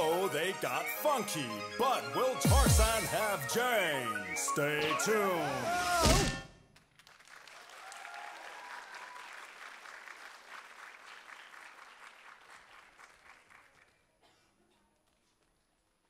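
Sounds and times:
audience applauding: 6.8s - 14.0s.

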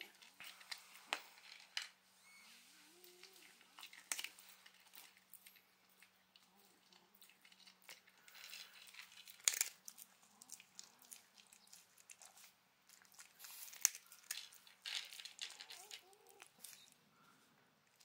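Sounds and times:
dog crunching dry kibble: 3.1s - 17.0s.

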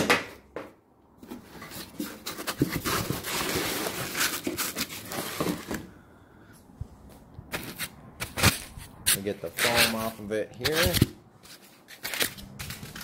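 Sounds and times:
foam and cardboard rustling: 1.2s - 6.0s.

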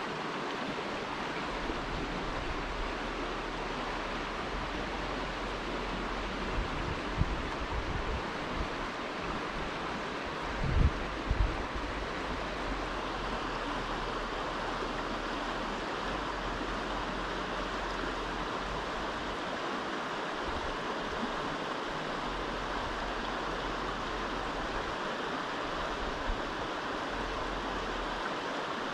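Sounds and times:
river water rushing: 0.0s - 28.9s.

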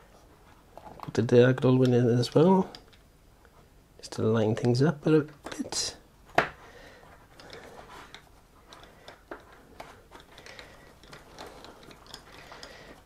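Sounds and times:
screwdriver ticks and scrapes: 7.2s - 13.0s.

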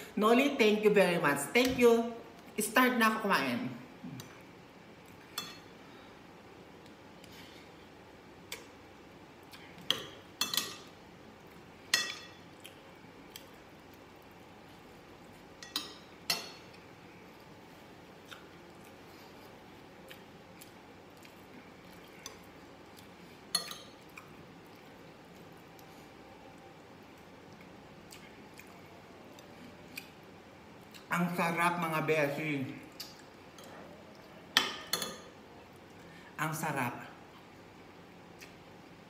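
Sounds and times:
cutlery clinking against glass bowls: 9.9s - 10.9s, 11.9s - 12.4s, 15.6s - 16.7s, 23.5s - 24.0s, 34.6s - 35.3s.

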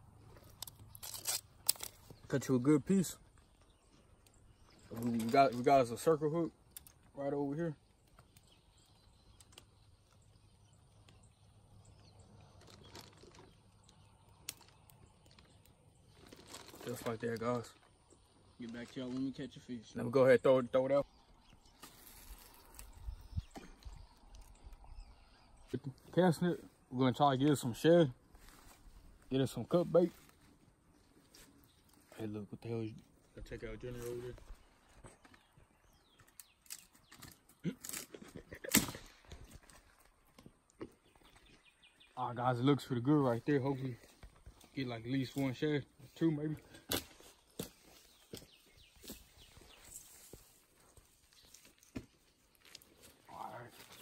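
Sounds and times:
branches brushing past: 12.3s - 17.9s, 21.6s - 24.6s, 46.7s - 54.0s.

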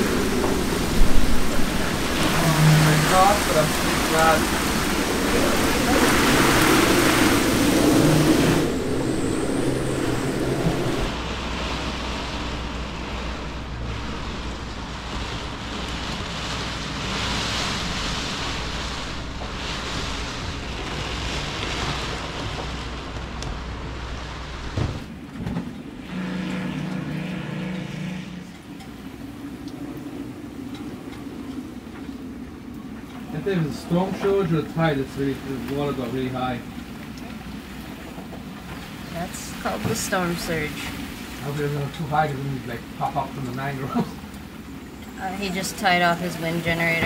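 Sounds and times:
low pitched drone: 0.0s - 17.0s, 25.7s - 33.1s
steady low hum: 0.0s - 33.7s
howling wind: 0.0s - 41.8s
rain on cabin roof: 0.0s - 47.0s.

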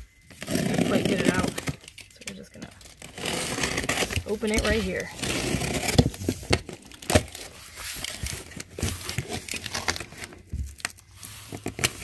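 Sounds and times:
cardboard scraping and crinkling: 0.1s - 12.0s
box cutter slicing cardboard: 3.0s - 6.4s.

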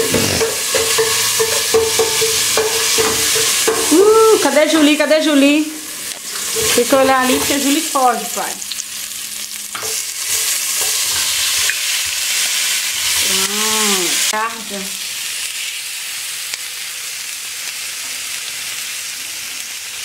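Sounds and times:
spoon stirring in a pot: 0.0s - 3.9s, 6.1s - 7.6s
vegetables sizzling in oil: 0.0s - 20.0s.

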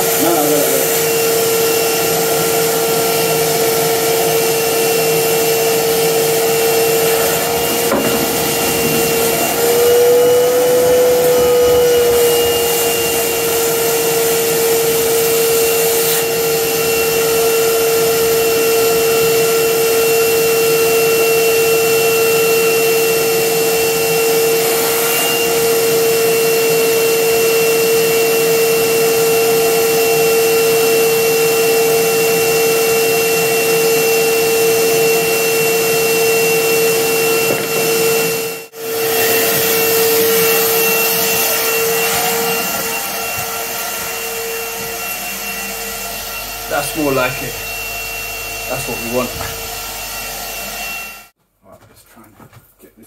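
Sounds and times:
wet vac motor whining: 0.0s - 18.5s, 31.1s - 51.3s.

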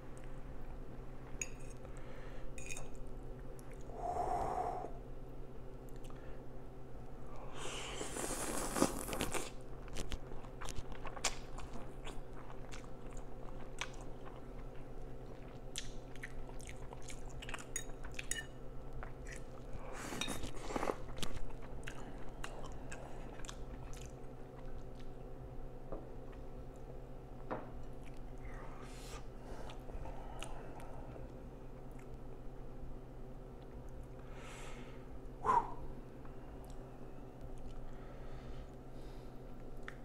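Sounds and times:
slurping noodles: 7.6s - 9.4s
wet chewing: 8.3s - 18.3s, 20.4s - 25.2s.

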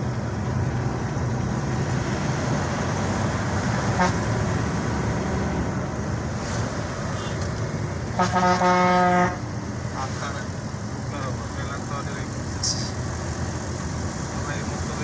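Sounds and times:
vehicle engine and road noise: 0.0s - 15.0s
vehicle horn: 3.9s - 4.3s, 8.2s - 9.4s.

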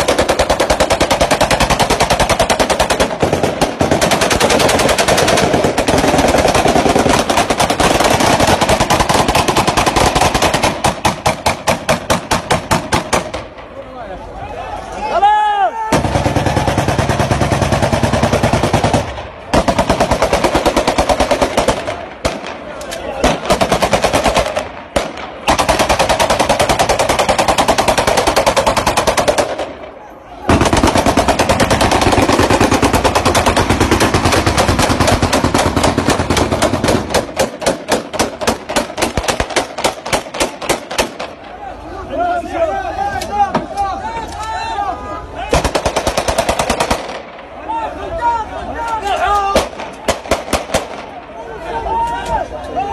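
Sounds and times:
automatic gunfire: 0.0s - 13.6s, 15.9s - 29.9s, 30.5s - 41.4s, 45.5s - 47.3s, 49.5s - 51.1s.

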